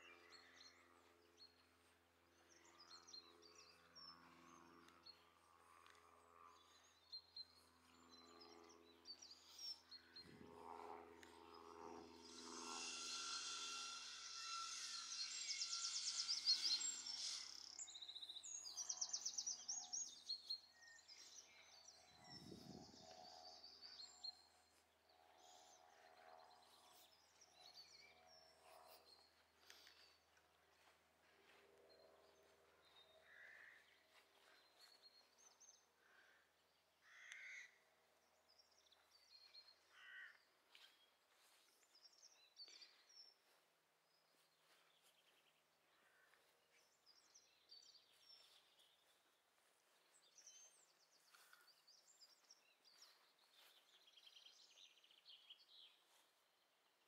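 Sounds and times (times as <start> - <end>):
small birds chirping: 12.2 - 24.7, 38.6 - 56.6.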